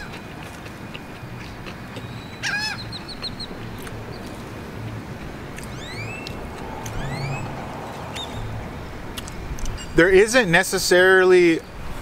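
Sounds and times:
rising bird whistles: 0:05.7 - 0:06.4, 0:07.0 - 0:07.5.

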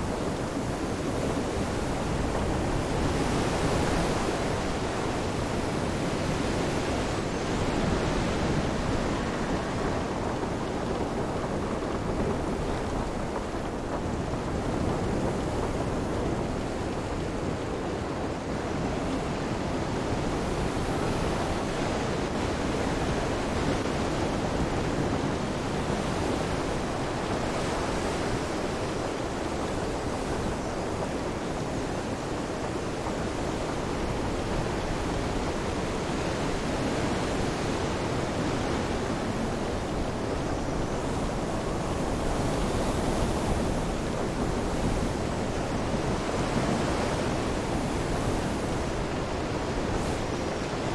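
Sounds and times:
rain: 0:00.0 - 0:50.9
surf: 0:00.0 - 0:50.9
wind: 0:00.0 - 0:50.9.

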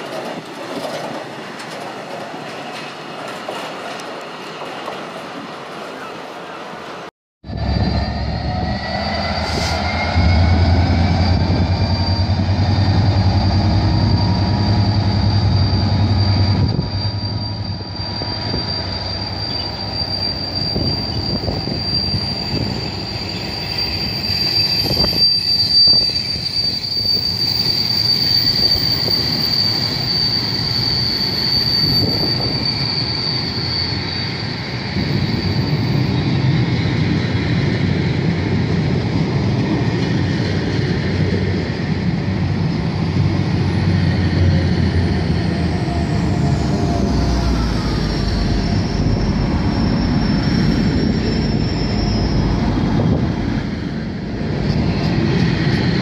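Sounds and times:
diesel locomotive engine drone: 0:00.0 - 0:56.0
wagon wheels squealing: 0:07.6 - 0:36.8, 0:42.6 - 0:53.1.

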